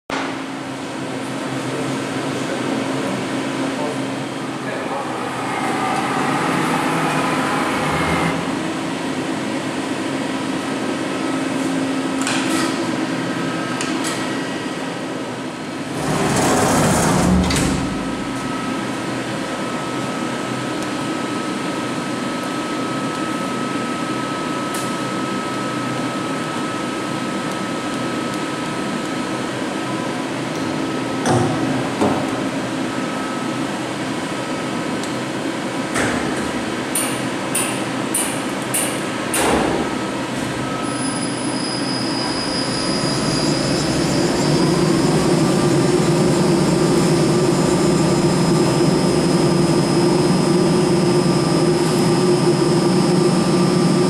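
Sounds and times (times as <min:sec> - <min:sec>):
lathe machine hum: 0:03.1 - 0:11.2, 0:15.6 - 0:20.7, 0:42.2 - 0:54.0
machine whine: 0:03.2 - 0:12.1, 0:12.9 - 0:31.3, 0:39.5 - 0:54.0.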